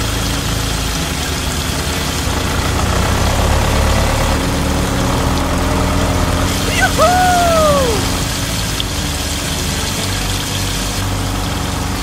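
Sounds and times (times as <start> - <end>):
tractor engine idling: 0.1 - 6.7.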